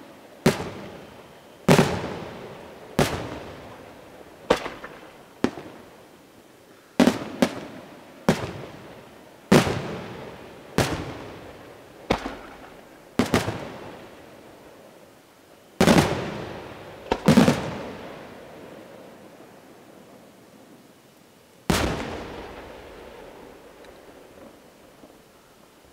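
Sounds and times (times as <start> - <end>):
firework shells bursting: 4.5 - 5.6.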